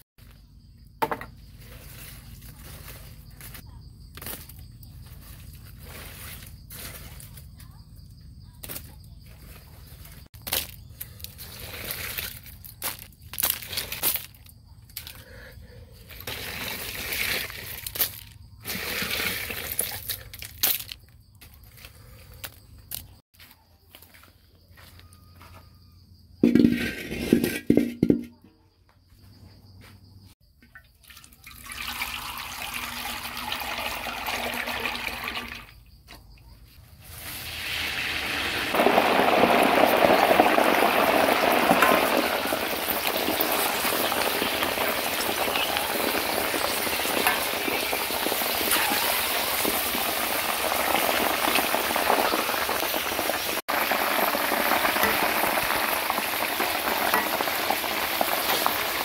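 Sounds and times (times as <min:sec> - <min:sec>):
hot oil sizzling and bubbling: 0:16.2 - 0:17.8, 0:18.6 - 0:20.0, 0:31.5 - 0:35.6, 0:37.1 - 0:59.0.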